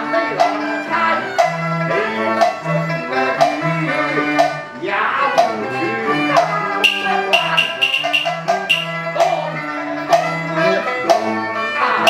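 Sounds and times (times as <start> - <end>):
bowed string melody: 1.2 - 12.0
sharp percussion strokes: 6.8 - 9.0.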